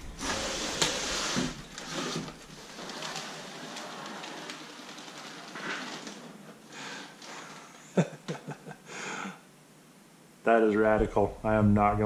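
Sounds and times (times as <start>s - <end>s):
cardboard scraping: 0.0s - 7.8s
plastic wrapping crinkling: 1.6s - 6.4s.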